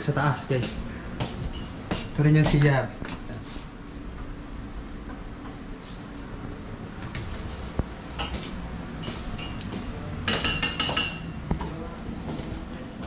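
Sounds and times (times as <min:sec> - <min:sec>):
utensils and dishes clinking: 0:00.6 - 0:03.3, 0:08.2 - 0:12.4.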